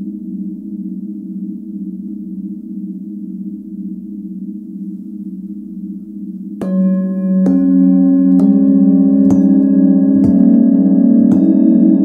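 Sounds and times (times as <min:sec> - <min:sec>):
singing bowls ringing: 0:06.6 - 0:12.0.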